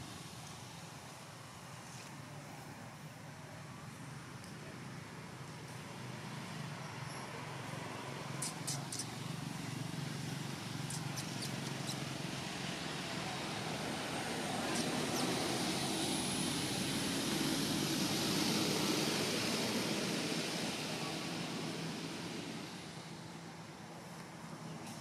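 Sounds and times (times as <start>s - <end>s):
distant engine passing by: 5.7s - 25.0s
faint high whine: 6.7s - 25.0s.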